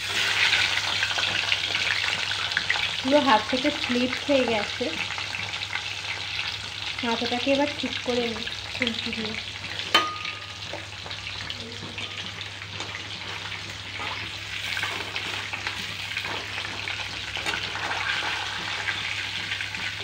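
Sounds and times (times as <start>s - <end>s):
fish sizzling in hot oil: 0.0s - 20.0s
metal spatula turning fish: 9.7s - 20.0s.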